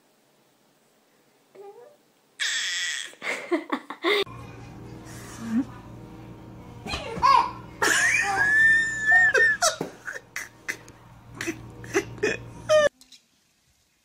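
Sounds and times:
baby squealing: 2.4s - 3.2s.

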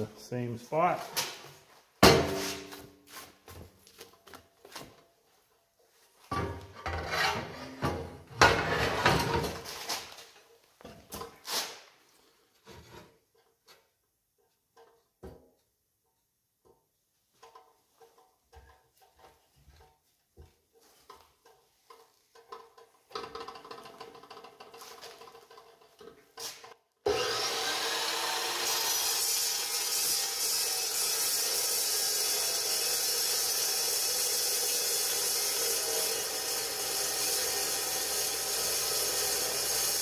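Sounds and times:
saw grinding metal: 6.8s - 9.3s, 27.1s - 40.0s.

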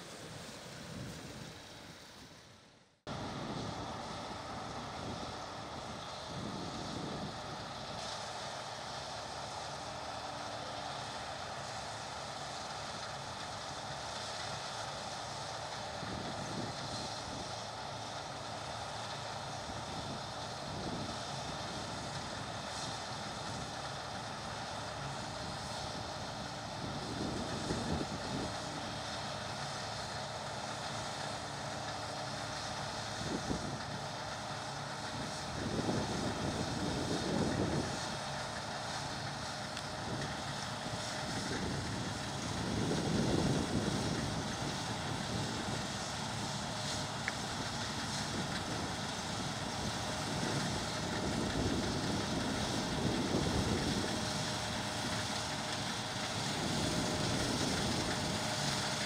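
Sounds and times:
combine harvester running: 0.0s - 59.0s
wind noise on microphone: 4.9s - 7.8s, 16.0s - 17.4s, 19.7s - 22.2s, 26.7s - 28.8s, 33.2s - 33.9s, 35.1s - 38.2s, 39.9s - 46.4s, 47.0s - 55.2s, 56.4s - 59.0s.

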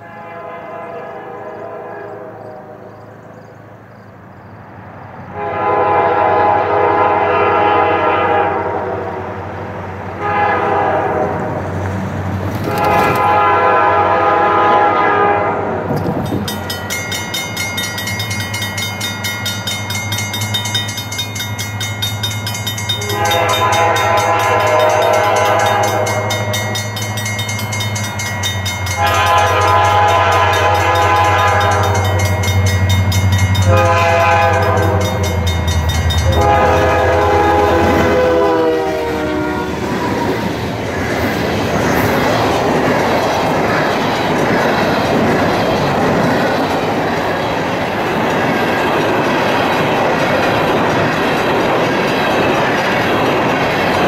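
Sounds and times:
locomotive air horn blasts: 0.0s - 2.9s, 5.3s - 9.4s, 10.2s - 11.6s, 12.6s - 15.9s, 23.0s - 26.8s, 28.9s - 32.4s, 33.6s - 40.1s
locomotive engines rumbling: 0.0s - 54.0s
rapid high ringing bell: 16.3s - 36.7s.

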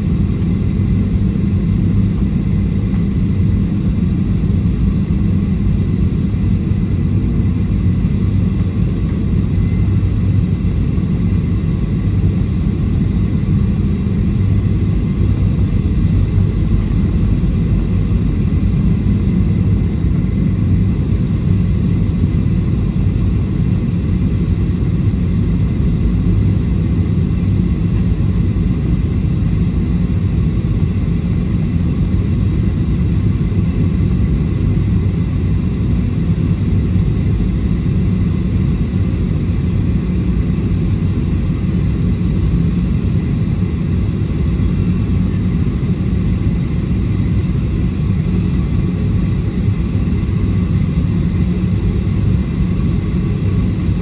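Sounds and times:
faint high whine: 0.0s - 21.8s
airliner cabin roar: 0.0s - 54.0s.

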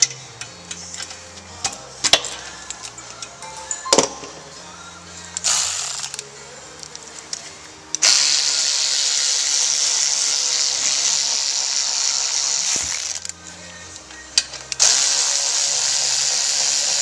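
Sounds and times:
power ratchet spinning: 5.4s - 7.4s, 8.0s - 17.0s.

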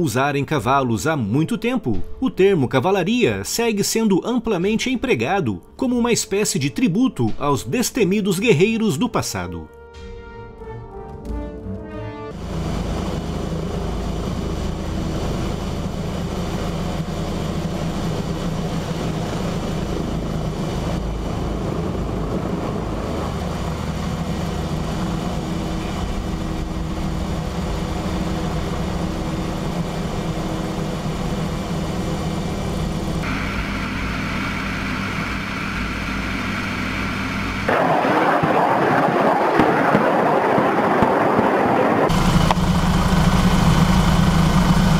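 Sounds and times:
helicopter engine and rotor drone: 12.3s - 44.9s
high whine: 12.3s - 44.9s.

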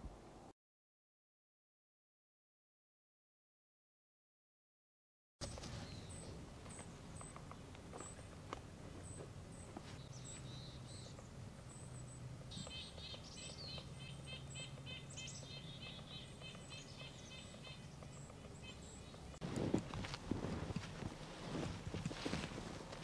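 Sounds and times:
small birds chirping: 5.4s - 23.0s.

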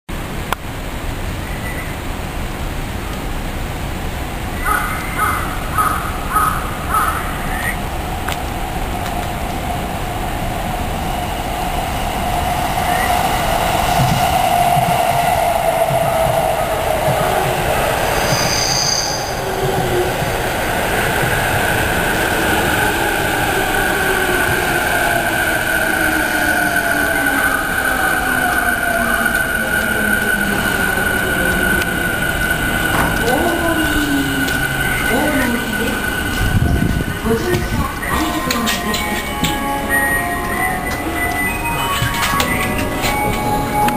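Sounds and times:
train rumbling on track: 0.1s - 43.9s
crow cawing: 4.7s - 7.7s.

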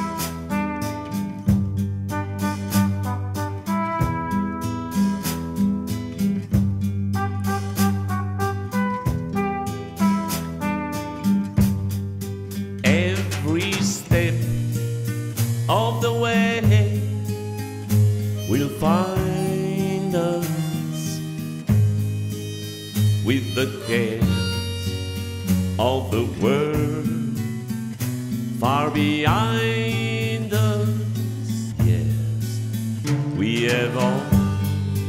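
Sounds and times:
low bass line: 0.0s - 35.0s
sliding held melody notes: 13.2s - 26.5s.

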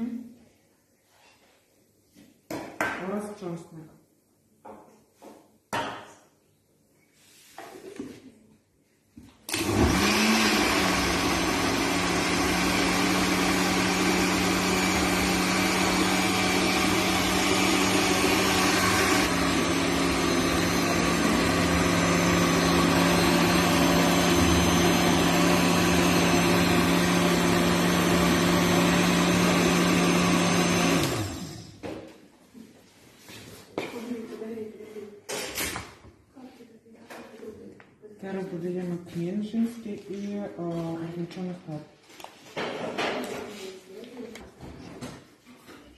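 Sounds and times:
blender running: 9.5s - 31.9s.

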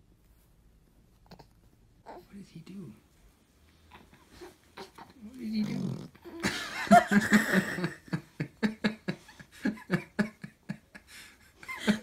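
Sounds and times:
person laughing: 6.4s - 12.0s.

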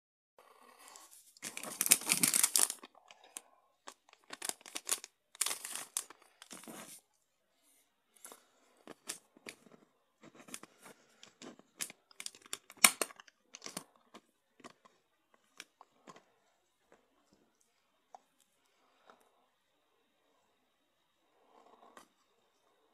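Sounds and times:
plastic bag rustling: 1.3s - 2.9s, 4.1s - 7.0s.

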